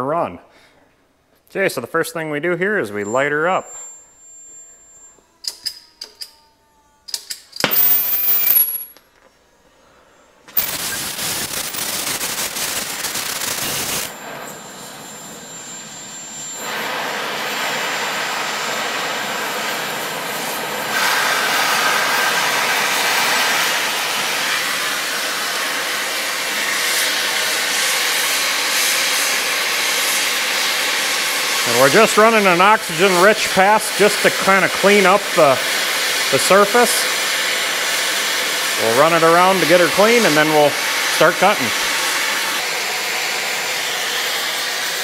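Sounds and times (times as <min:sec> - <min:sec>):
torch lighting: 0:07.1 - 0:09.0, 0:10.5 - 0:14.2, 0:20.3 - 0:42.7
cutting torch hissing: 0:10.6 - 0:45.0.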